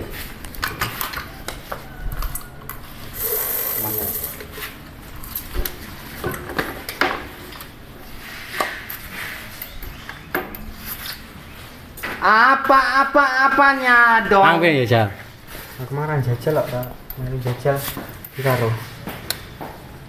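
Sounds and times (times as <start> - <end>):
rustling hiss: 3.1 - 4.8.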